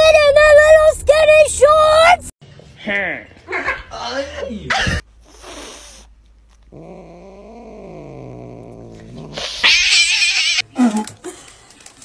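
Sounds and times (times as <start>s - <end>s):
cat hissing: 5.2s - 6.6s, 9.3s - 10.6s
cat growling yowl: 5.2s - 10.6s.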